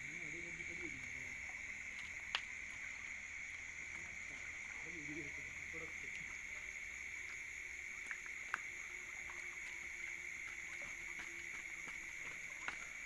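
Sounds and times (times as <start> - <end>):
night insects droning: 0.0 - 13.0
faint clicks: 1.9 - 2.8, 7.2 - 12.9.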